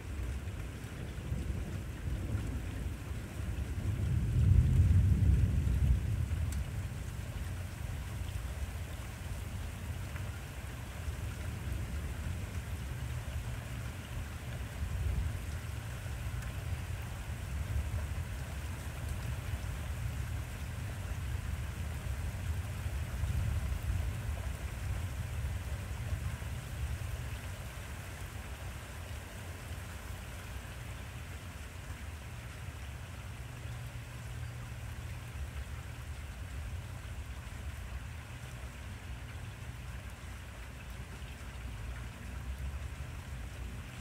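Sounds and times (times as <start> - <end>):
steady rain: 0.0 - 44.0
distant thunder rumbling: 1.1 - 7.7.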